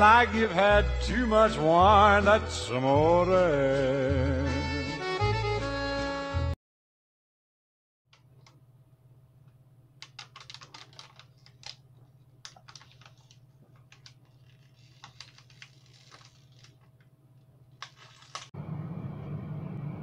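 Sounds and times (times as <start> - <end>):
plastic bottle clicks and crinkles: 10.0 - 17.1, 17.8 - 18.5
steady low hum: 18.6 - 20.0.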